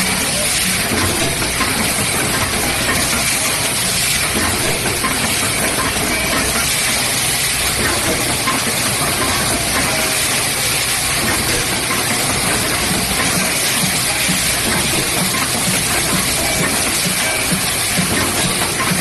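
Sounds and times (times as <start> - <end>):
machine hissing: 0.0 - 19.0.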